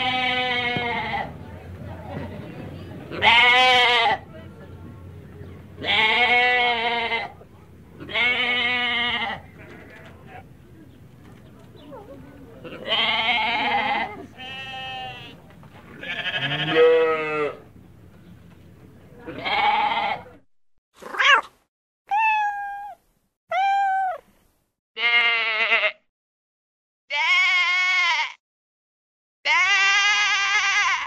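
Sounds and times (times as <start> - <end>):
goat bleating: 0.0 - 1.3, 3.1 - 4.2, 5.8 - 7.4, 8.0 - 10.5, 12.6 - 17.6, 19.3 - 20.3, 25.0 - 26.0, 27.1 - 28.4, 29.5 - 31.0
sheep bleating: 0.0 - 1.3, 3.1 - 4.2, 5.8 - 7.4, 8.0 - 10.4, 12.7 - 15.4, 16.0 - 17.6, 19.3 - 20.3, 25.0 - 26.0, 27.1 - 28.4, 29.5 - 31.0.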